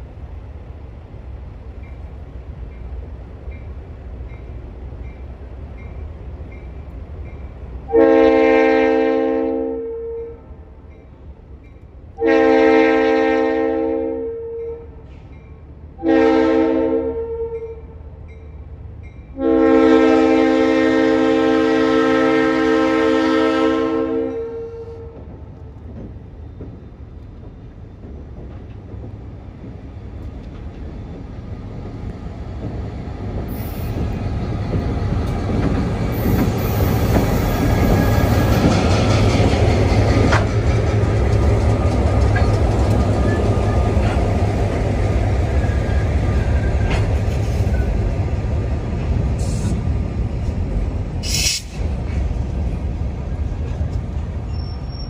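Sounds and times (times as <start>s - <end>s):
train horn chord: 7.9s - 10.5s, 12.2s - 15.0s, 16.0s - 18.0s, 19.3s - 25.2s
locomotive engine rumble: 17.8s - 55.0s
freight cars rolling by: 25.2s - 55.0s
high wheel squeals: 54.5s - 55.0s.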